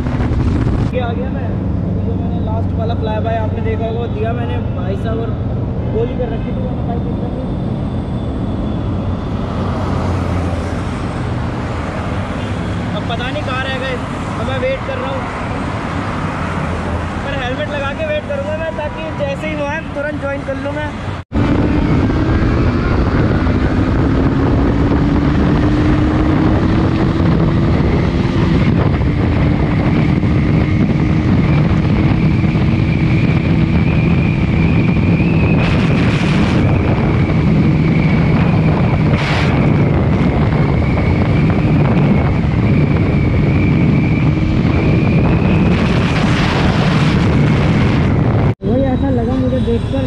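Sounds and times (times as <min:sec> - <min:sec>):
wind noise on microphone: 0:00.0 - 0:01.9, 0:21.1 - 0:50.0
motorcycle engine drone: 0:00.0 - 0:18.1, 0:21.3 - 0:50.0.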